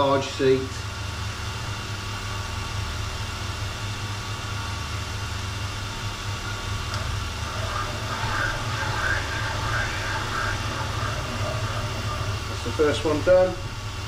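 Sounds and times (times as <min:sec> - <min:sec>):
valve seat cutting machine humming: 0:05.9 - 0:14.0.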